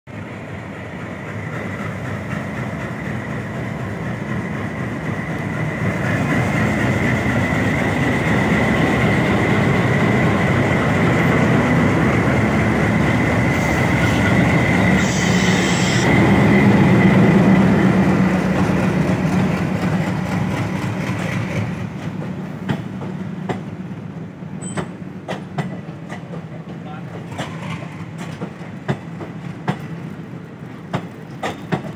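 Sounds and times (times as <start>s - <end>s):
diesel locomotive engines rumbling: 0.1s - 31.9s
train wheels clicking on rail joints: 0.8s - 23.8s, 24.6s - 31.9s
locomotive high whine: 2.4s - 20.5s.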